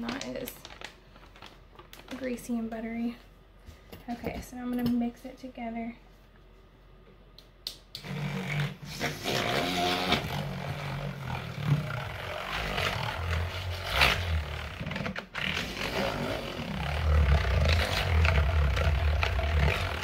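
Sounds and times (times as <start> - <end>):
milk frother whirring: 8.1 - 20.0.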